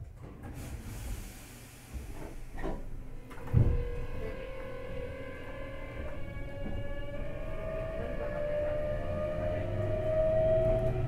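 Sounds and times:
heavy low thump: 2.0s - 4.3s
train inverter tones rising: 2.2s - 11.0s.

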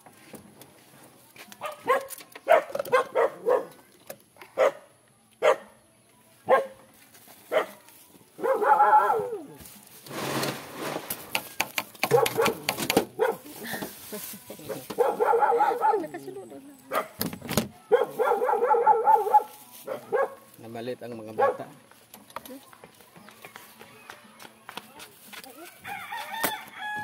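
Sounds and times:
dog barking: 1.6s - 3.8s, 4.6s - 5.8s, 6.5s - 6.8s, 7.5s - 7.8s, 8.4s - 9.5s, 12.0s - 13.5s, 14.7s - 16.2s, 16.9s - 17.2s, 17.8s - 20.5s, 21.3s - 21.8s.

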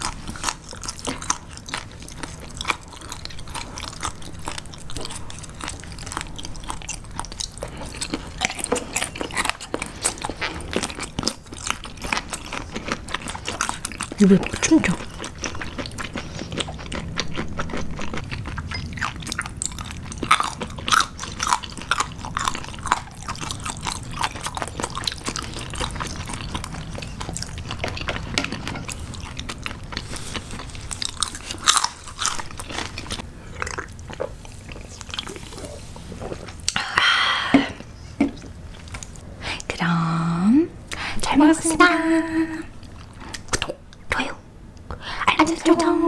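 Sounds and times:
crunchy chewing: 0.0s - 36.8s.

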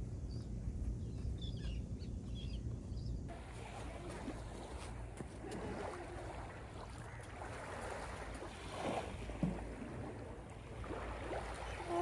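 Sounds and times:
small waves washing onto sand: 3.3s - 12.0s.

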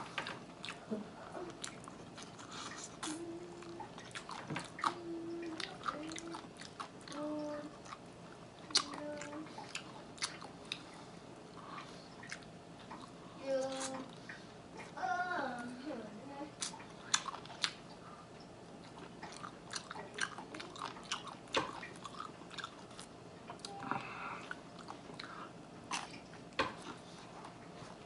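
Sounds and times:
person chewing chicken wings: 0.2s - 8.0s, 8.6s - 14.3s, 16.6s - 18.2s, 18.8s - 28.0s.

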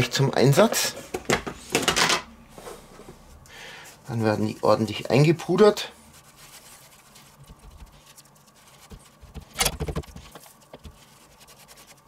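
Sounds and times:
hand patting raw meat: 7.3s - 8.1s.

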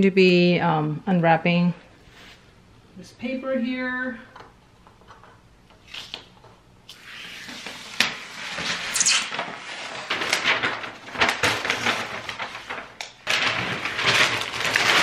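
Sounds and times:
paper crinkling and rustling: 7.4s - 15.0s.

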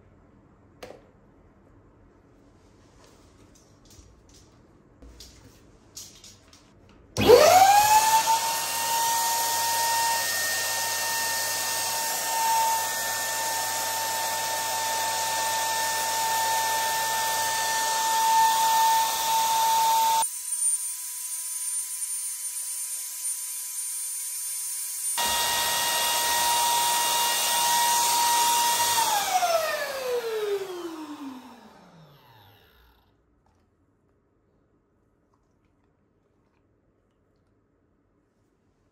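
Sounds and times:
electric balloon pump motor whine: 7.2s - 22.6s, 24.4s - 33.1s.

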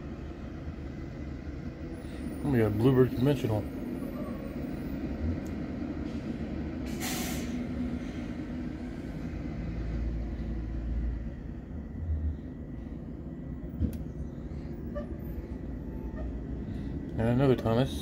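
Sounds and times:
bus engines running: 0.0s - 18.0s
bus pulling past: 0.0s - 18.0s
air-brake hiss: 6.0s - 8.5s.

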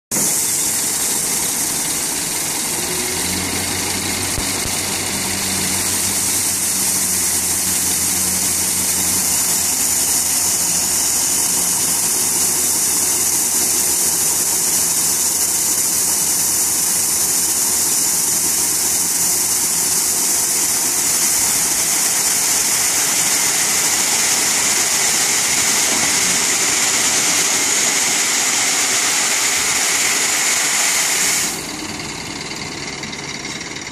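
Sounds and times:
diesel truck engine running: 0.1s - 33.9s
gravel pouring out: 0.2s - 32.1s.

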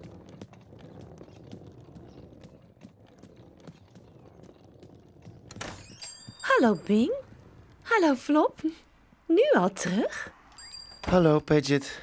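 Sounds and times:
light cartoon footsteps: 0.0s - 7.9s.

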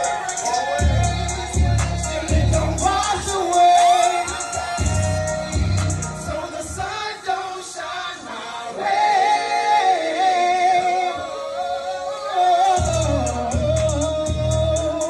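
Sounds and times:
hip-hop track with sung vocals: 0.0s - 15.0s
deep bass beat: 0.8s - 6.4s, 12.8s - 15.0s.

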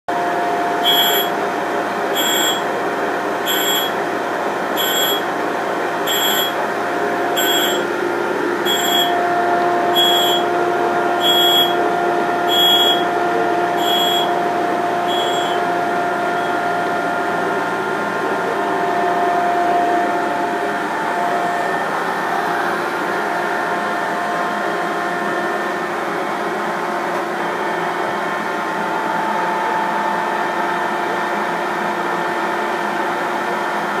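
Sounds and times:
grinder motor hum: 0.1s - 26.5s
short high chirp: 0.9s - 1.3s, 2.2s - 2.6s, 3.5s - 4.0s, 4.8s - 5.2s, 6.1s - 6.6s, 7.4s - 7.8s, 8.7s - 9.2s, 10.0s - 10.5s, 11.2s - 11.8s, 12.5s - 13.0s, 13.8s - 14.3s, 15.1s - 15.6s.

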